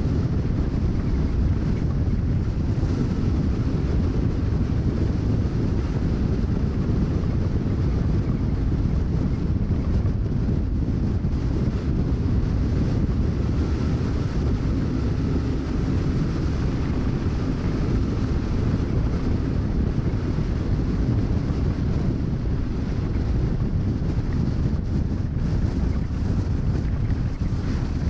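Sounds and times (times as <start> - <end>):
heavy wind buffeting microphone: 0.0 - 28.0.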